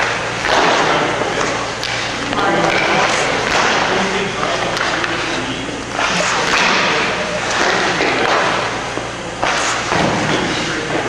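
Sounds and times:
stick striking a puck: 0.0s - 5.3s.

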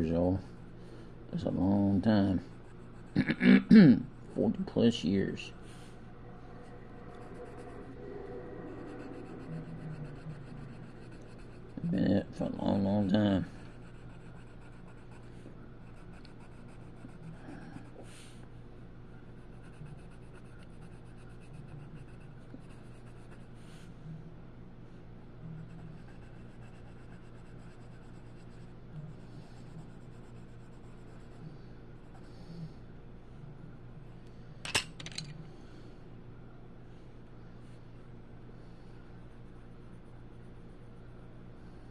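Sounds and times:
steady low hum: 0.0s - 41.9s
colored pencil scratching paper: 9.0s - 17.9s, 19.4s - 23.6s, 25.6s - 31.4s.

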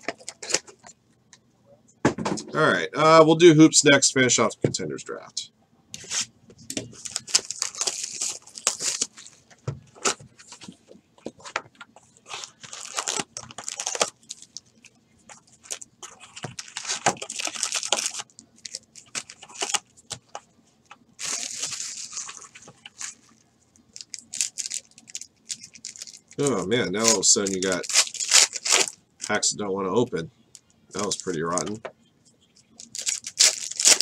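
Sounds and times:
foil wrappers crinkling and tearing: 6.9s - 10.1s, 12.2s - 20.2s, 21.2s - 29.5s, 31.0s - 31.8s, 32.8s - 34.0s.

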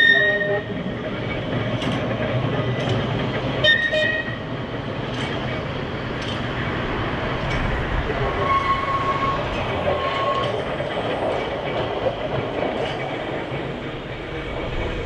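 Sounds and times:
tram rumbling: 0.0s - 15.0s
high wheel squeal: 8.4s - 10.6s.

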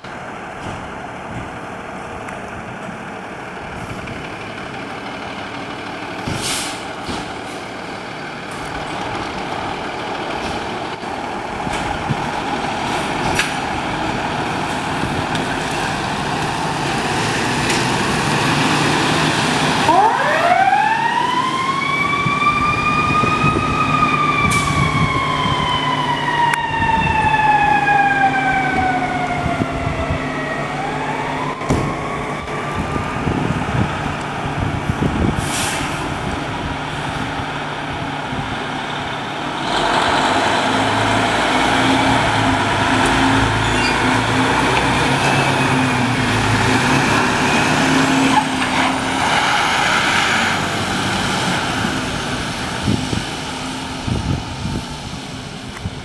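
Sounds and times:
diesel truck engine: 0.0s - 56.0s
fire engine siren wailing: 11.2s - 56.0s.

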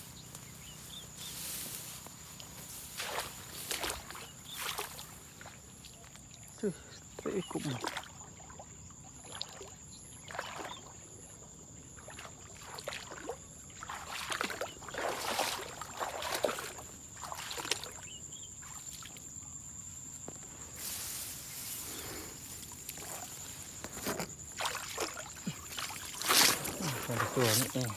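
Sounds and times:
grass stalks rustling: 0.2s - 4.8s, 20.2s - 24.4s
shallow water sloshing: 11.9s - 19.4s, 22.4s - 27.9s.

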